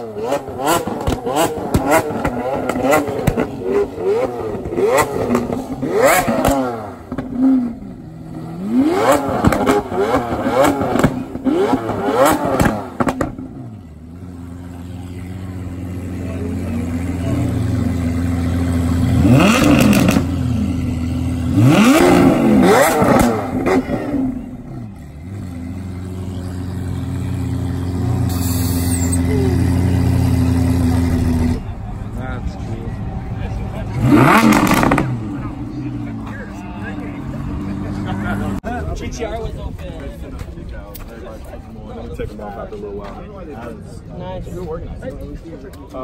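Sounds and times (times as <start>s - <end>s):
sports car engine revving: 0.0s - 38.6s
car engine idling: 0.0s - 39.4s.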